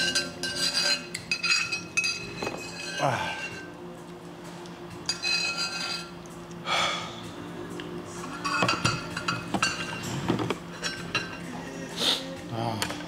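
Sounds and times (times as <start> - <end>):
tableware clinking: 0.0 - 3.8, 5.0 - 6.2, 8.2 - 11.8.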